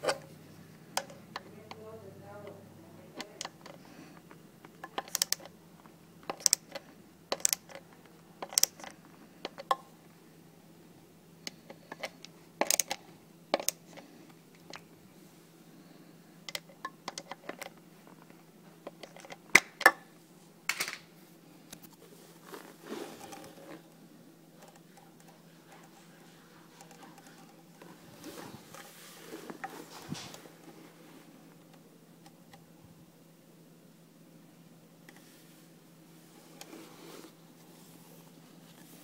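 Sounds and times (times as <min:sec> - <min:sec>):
faint steady hum: 0:00.0 - 0:39.0
screwdriver clicking on metal: 0:04.8 - 0:05.5, 0:06.3 - 0:07.8, 0:08.4 - 0:08.9.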